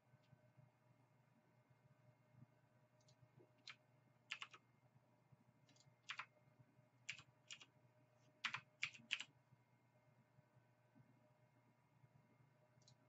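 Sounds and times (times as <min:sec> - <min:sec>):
keyboard and mouse clicks: 0:03.0 - 0:04.6, 0:05.7 - 0:06.3, 0:07.1 - 0:07.7, 0:08.4 - 0:09.3.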